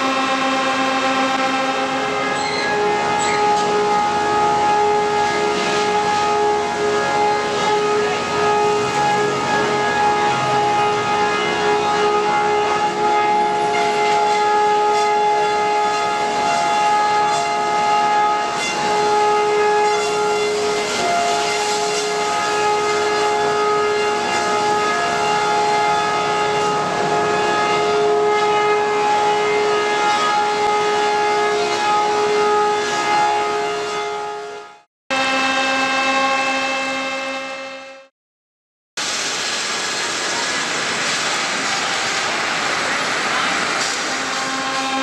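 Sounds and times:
sawmill machine high whine: 0:00.0 - 0:34.1.

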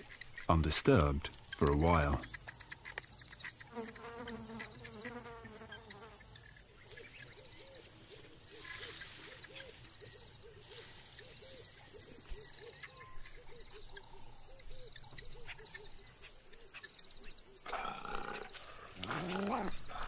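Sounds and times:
insects buzzing: 0:00.0 - 0:20.0.

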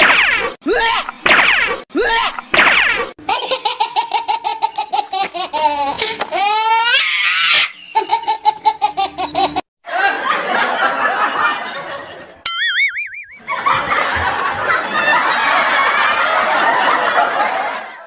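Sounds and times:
high-pitched laughter: 0:03.2 - 0:10.2.

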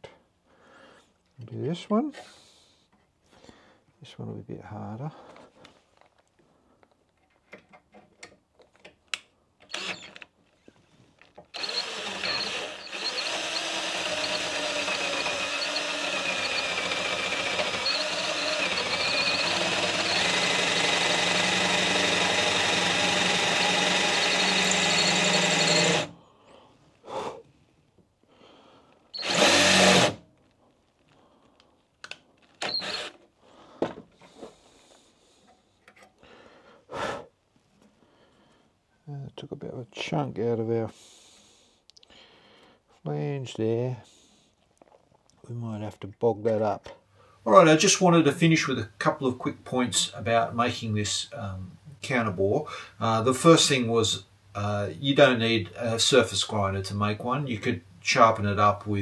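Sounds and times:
cordless drill cutting metal: 0:09.7 - 0:10.2, 0:11.5 - 0:26.1, 0:29.2 - 0:30.2, 0:32.6 - 0:33.2.

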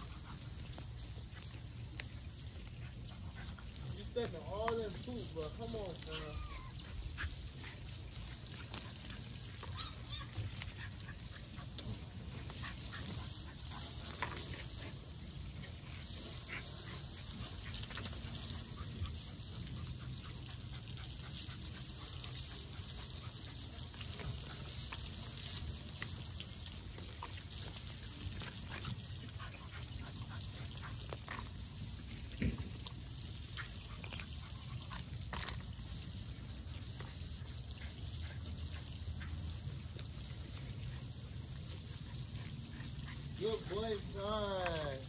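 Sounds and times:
dog tugging rope sounds: 0:00.0 - 0:45.0.

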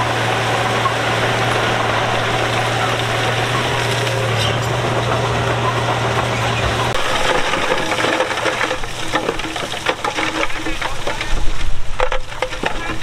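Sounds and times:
stone and steel clattering: 0:02.8 - 0:13.0.

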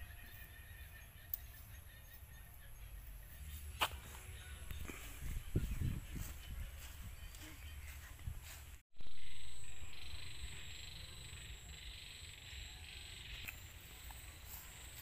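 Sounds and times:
insects and frogs buzzing: 0:09.0 - 0:15.0.

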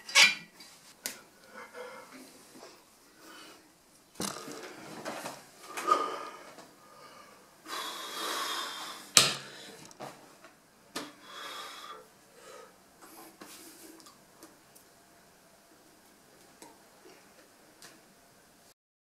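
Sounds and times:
person breathing: 0:01.3 - 0:03.7, 0:05.6 - 0:09.9, 0:11.1 - 0:14.0
breath blown through puffed cheeks: 0:07.7 - 0:09.7.

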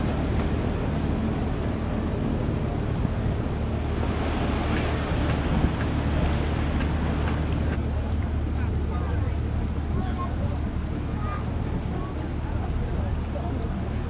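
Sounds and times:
wind on microphone: 0:00.0 - 0:08.5
ship engines droning: 0:00.0 - 0:14.0
water rushing along hull: 0:00.0 - 0:14.0.

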